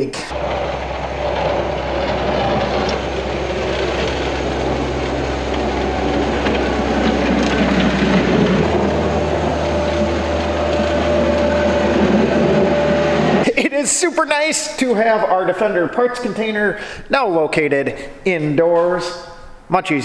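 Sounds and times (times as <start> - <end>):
loader engine running: 0.3 - 13.7
bucket pushing snow: 0.3 - 15.0.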